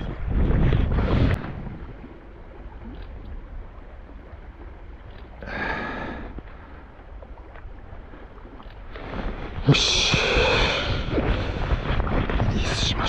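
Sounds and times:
wind gust on microphone: 0.0 - 2.2, 8.9 - 13.0.

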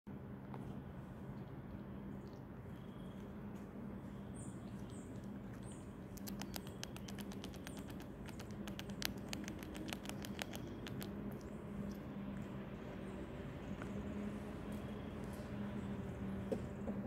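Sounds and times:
chipmunk gnawing nut shell: 4.6 - 12.5.

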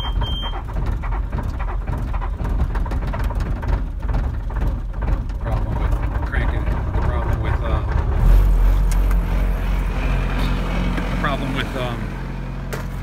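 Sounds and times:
short electronic beep: 0.0 - 0.6
diesel engine starting: 0.0 - 13.0.

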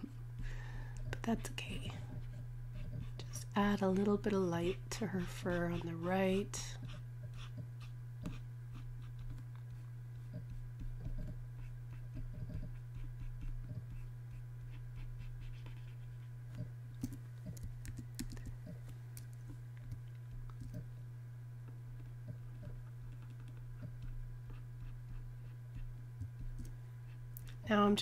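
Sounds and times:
steady low hum: 0.0 - 28.0
keyboard and mouse clicks: 16.6 - 20.8.

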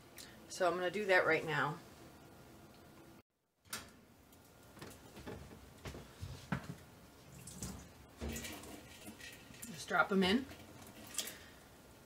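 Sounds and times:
water dripping: 7.3 - 11.5.

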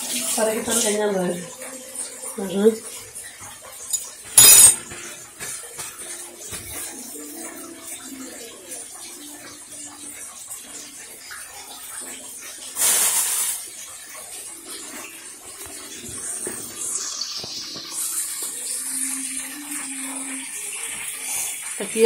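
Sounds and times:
fish sizzling in hot oil: 12.7 - 13.8, 16.6 - 22.0.

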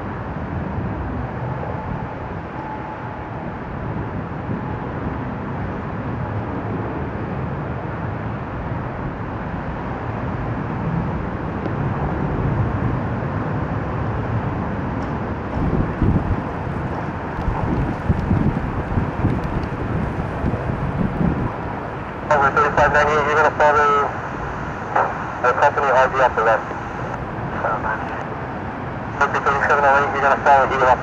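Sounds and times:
distant jet engines: 0.0 - 31.0
wind buffeting microphone: 10.4 - 23.3, 26.4 - 29.2.

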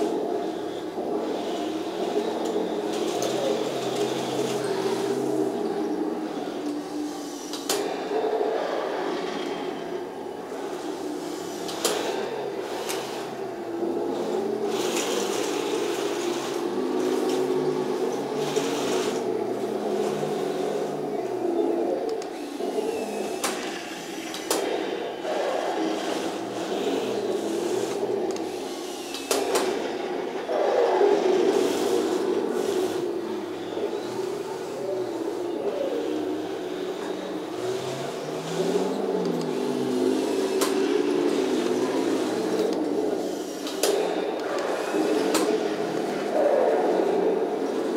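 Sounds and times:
toy tank motor whirring: 10.7 - 47.9.

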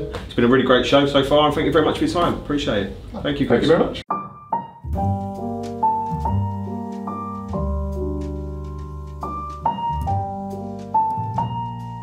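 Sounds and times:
piano chords ringing: 4.1 - 12.0.

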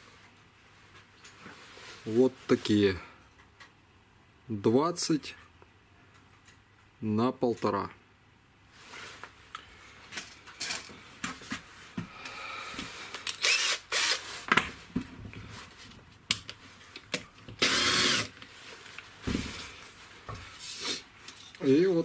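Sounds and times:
cordless drill motor whine: 13.4 - 14.2, 17.6 - 18.3.

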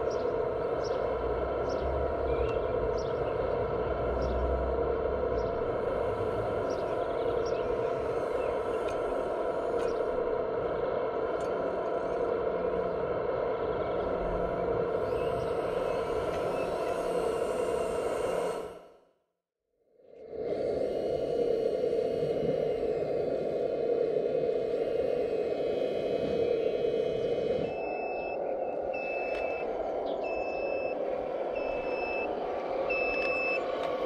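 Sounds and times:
hydraulic pump humming and whining: 0.0 - 19.1, 20.2 - 34.0
faint ticks: 8.8 - 10.0.

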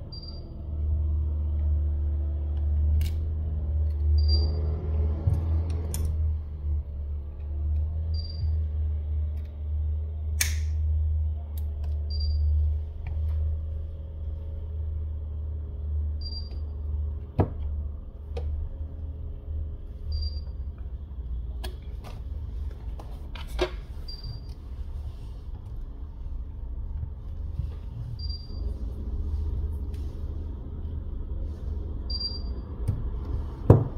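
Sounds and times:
low rumble: 23.9 - 33.9.

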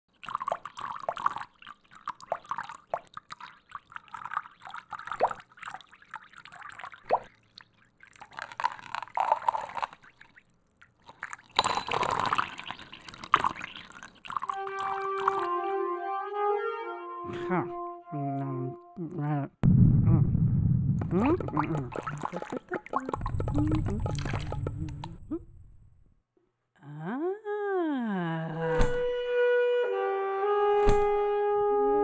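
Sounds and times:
water dripping: 0.1 - 15.5, 20.9 - 26.0
water rushing: 21.1 - 25.7.

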